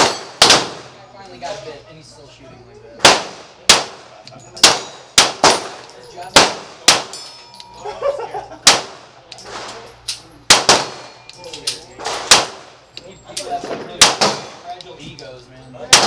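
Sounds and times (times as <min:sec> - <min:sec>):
pistol shots: 0:00.0 - 0:01.0, 0:03.0 - 0:07.2, 0:08.6 - 0:09.8, 0:10.5 - 0:11.2, 0:12.0 - 0:12.8, 0:14.0 - 0:14.6
steel targets clanging: 0:04.1 - 0:08.0.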